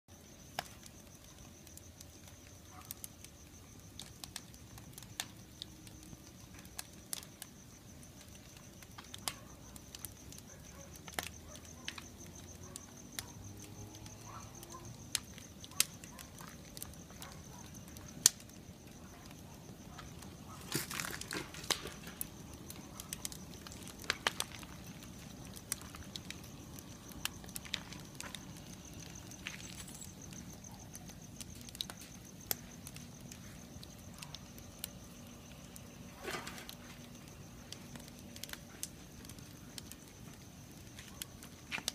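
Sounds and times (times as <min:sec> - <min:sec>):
firewood crackling and popping: 0:00.1 - 0:41.9.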